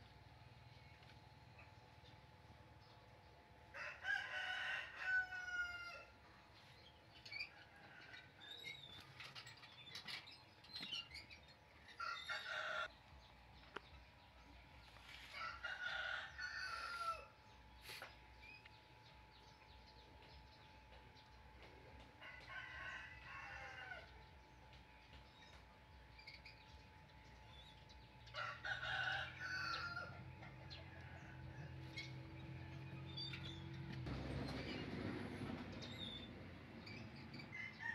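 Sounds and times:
rooster crowing: 3.7 - 6.1, 12.0 - 12.9, 15.3 - 17.4, 22.2 - 24.1, 28.3 - 32.1, 37.5 - 37.9.

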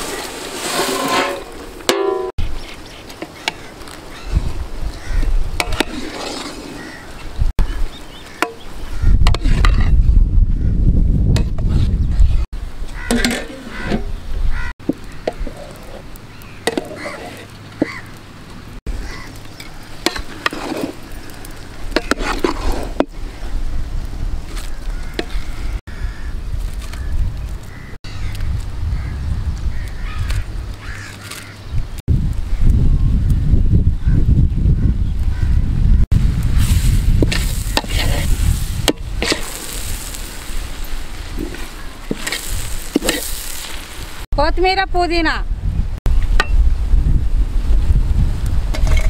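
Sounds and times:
metal spoon scraping a metal pot: 0.6 - 2.3, 21.9 - 23.1, 37.3 - 39.8
frying and sizzling: 36.1 - 44.3.

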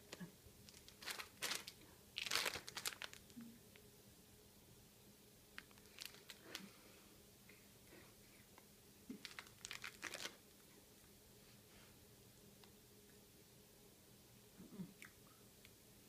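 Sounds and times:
plastic bag crinkling: 0.6 - 3.4, 5.6 - 6.8, 9.1 - 10.5.

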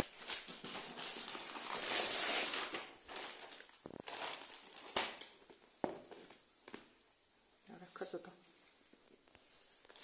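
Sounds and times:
plastic bag rustling and crinkling: 0.0 - 6.4.

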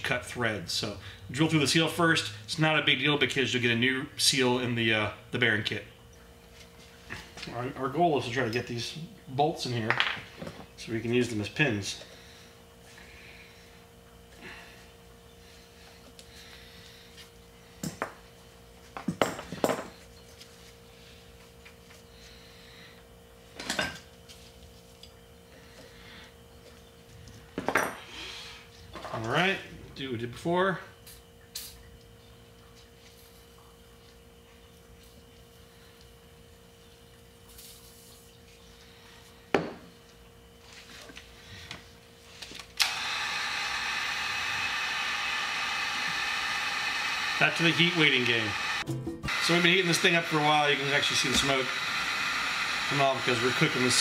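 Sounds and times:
faint steady hum: 0.0 - 48.8
heat gun blowing: 42.8 - 54.0.

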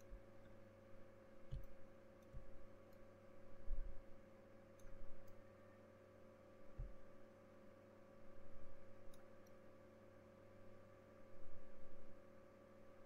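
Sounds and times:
faint electrical hum: 0.0 - 13.0
soft clicks: 4.7 - 5.4, 9.0 - 9.6.

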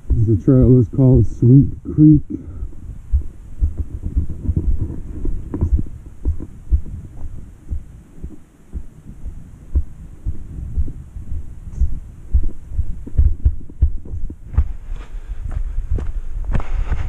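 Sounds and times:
footsteps on dirt trail: 2.6 - 17.0.

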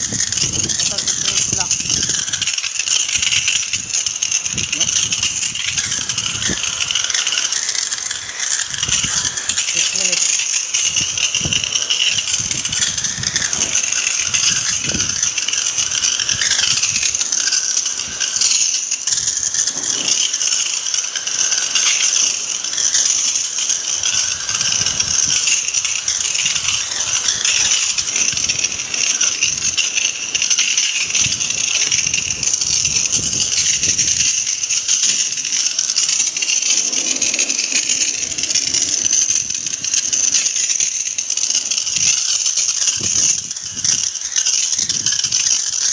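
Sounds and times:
water jet spraying metal: 0.0 - 45.9.

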